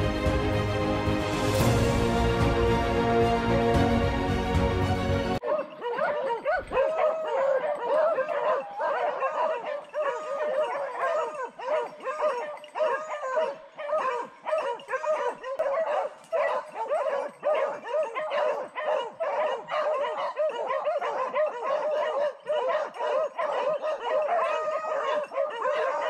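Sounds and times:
dogs baying: 0:05.4 - 0:26.0.

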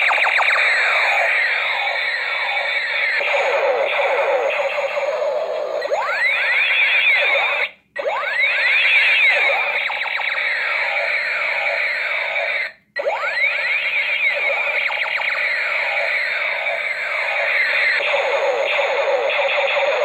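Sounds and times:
toy gun electronic sweeps: 0:00.0 - 0:20.0.

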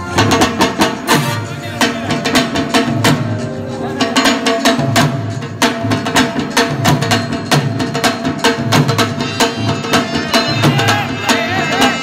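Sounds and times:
harmonium: 0:00.0 - 0:05.8, 0:08.4 - 0:12.0
dholak drum beat: 0:00.0 - 0:12.0.

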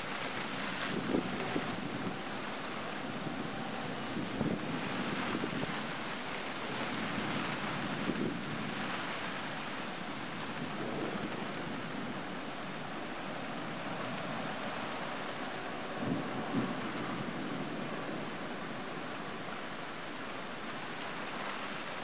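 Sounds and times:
heavy rain hiss: 0:00.0 - 0:22.0
wind: 0:00.0 - 0:22.0
thunder rumbling: 0:10.5 - 0:12.2.

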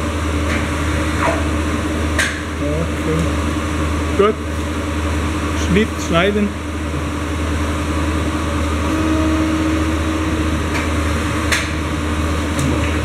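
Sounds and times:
paper cutter motor hum: 0:08.5 - 0:13.0.

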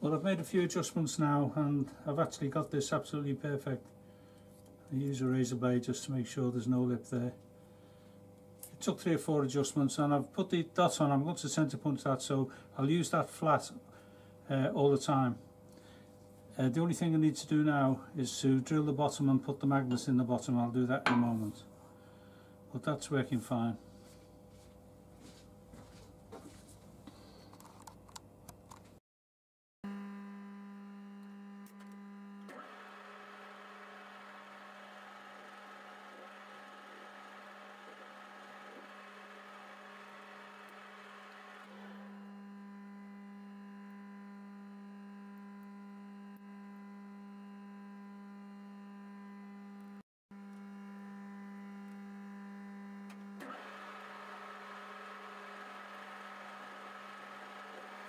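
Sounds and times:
lathe motor hum with whine: 0:29.9 - 0:58.0.

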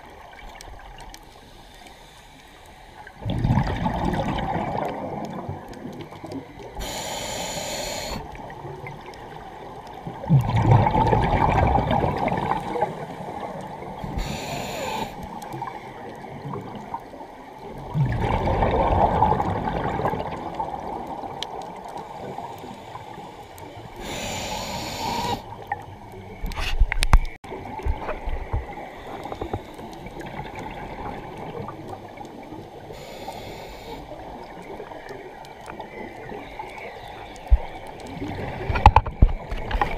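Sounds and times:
scuba regulator hissing inhales: 0:01.4 - 0:03.2, 0:06.8 - 0:08.3, 0:14.0 - 0:15.3, 0:22.0 - 0:25.5, 0:32.9 - 0:34.2
gurgling bubble bursts: 0:03.2 - 0:06.1, 0:10.1 - 0:13.0, 0:17.8 - 0:21.4.

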